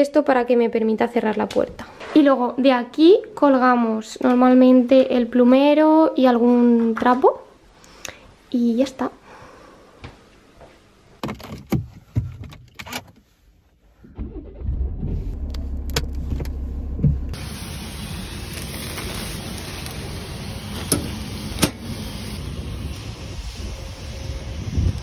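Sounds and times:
car engine running low: 14.2 - 21.4
outdoor street noise: 15.2 - 25.0
thump: 17.0 - 17.4.

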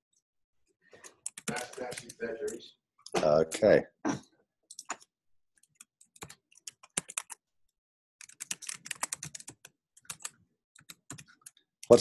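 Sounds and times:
typing on a keyboard: 1.0 - 2.6, 4.7 - 7.4, 8.2 - 12.0.

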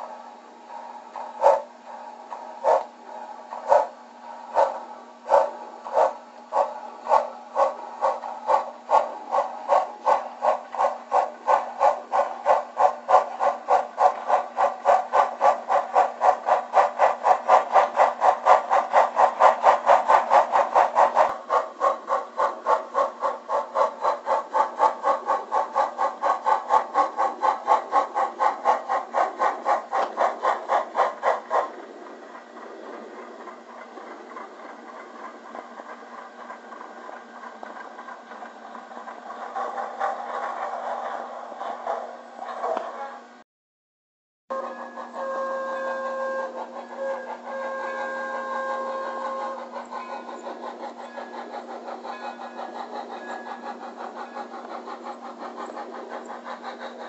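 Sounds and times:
model steam locomotive chuffing: 0.0 - 43.4, 44.5 - 57.0.

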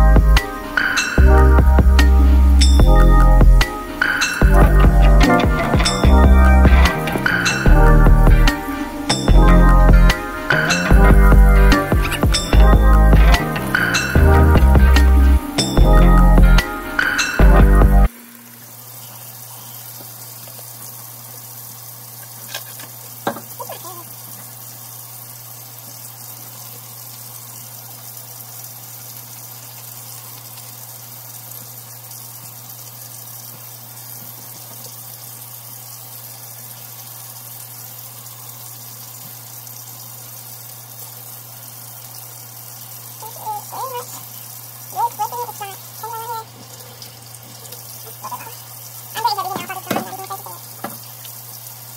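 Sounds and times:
tap running into sink: 22.5 - 23.6, 49.2 - 51.4.

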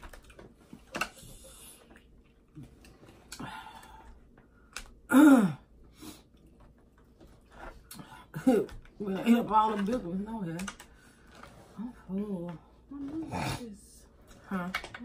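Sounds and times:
clicks and rustles handling food: 0.0 - 1.2.

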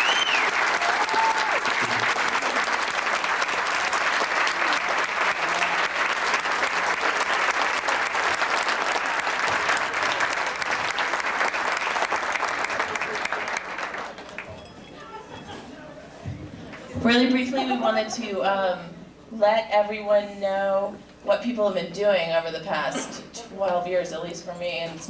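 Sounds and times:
high call from crowd: 0.0 - 2.5
audience applauding: 0.0 - 15.4.

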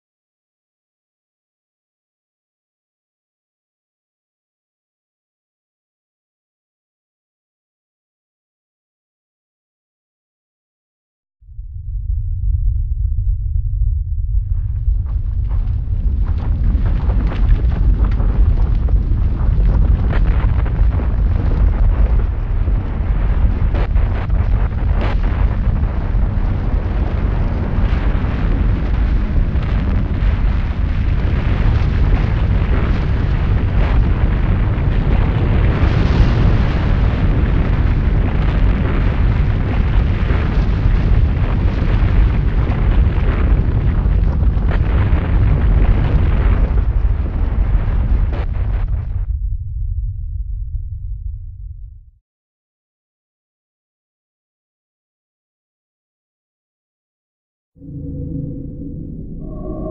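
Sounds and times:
deep rumble: 11.4 - 52.2, 57.8 - 59.9.

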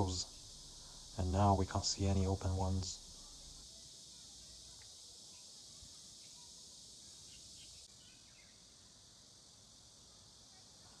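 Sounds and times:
steady high hiss: 0.0 - 11.0
faint ticks: 4.7 - 5.4.

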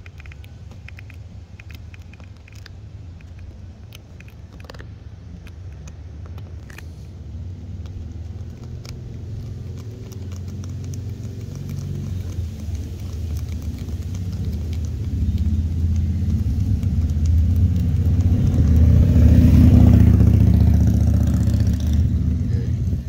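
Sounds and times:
vehicle engine rumble: 0.0 - 23.0.

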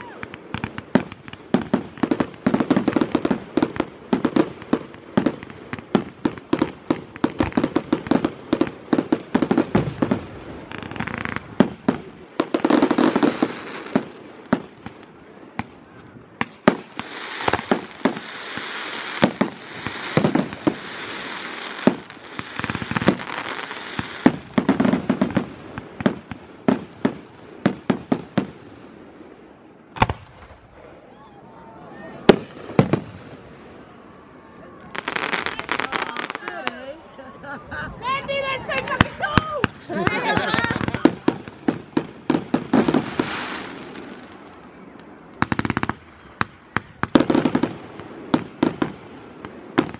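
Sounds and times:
fireworks bangs: 0.0 - 29.2, 29.9 - 31.1, 32.2 - 33.7, 34.8 - 36.8, 38.0 - 49.9
fireworks hiss: 16.7 - 25.9, 40.3 - 44.5.

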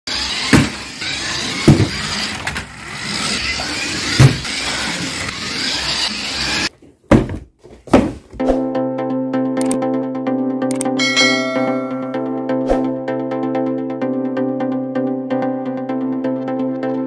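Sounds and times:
toy car electric motor whirring: 0.1 - 6.7.

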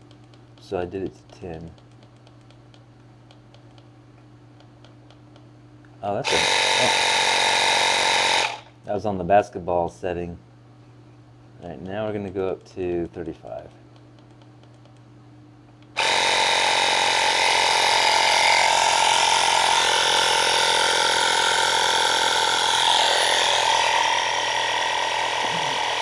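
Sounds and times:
tire inflator compressor running: 6.2 - 8.7, 16.0 - 26.0.

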